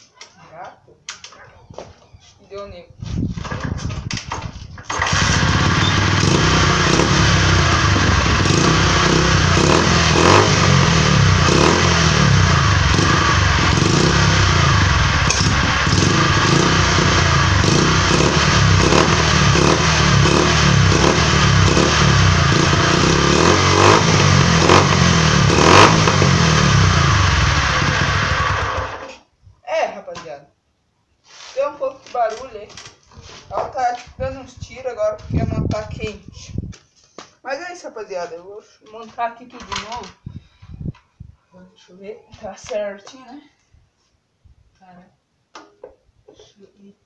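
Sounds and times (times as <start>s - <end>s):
motorcycle engine kick-started: 4.8s - 29.2s.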